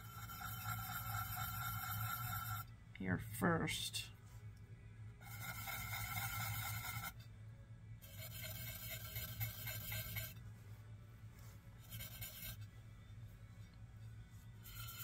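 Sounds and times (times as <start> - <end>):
pencil scratching on ceramic: 0.0 - 2.7, 5.2 - 7.2, 8.0 - 10.4, 11.8 - 12.7, 14.4 - 15.0.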